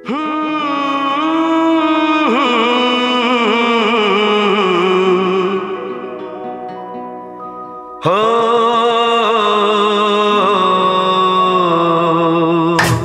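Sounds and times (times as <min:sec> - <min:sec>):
singer holding long note: 0:00.0 - 0:13.0
backing music: 0:12.7 - 0:13.0.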